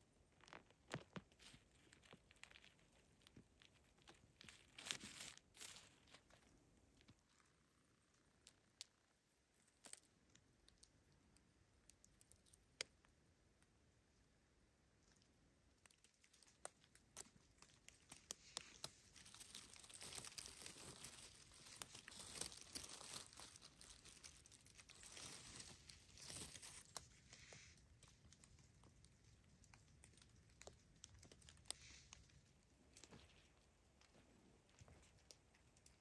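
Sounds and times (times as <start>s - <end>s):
dry leaves rustling and crinkling: 4.4s - 6.2s, 18.2s - 27.0s.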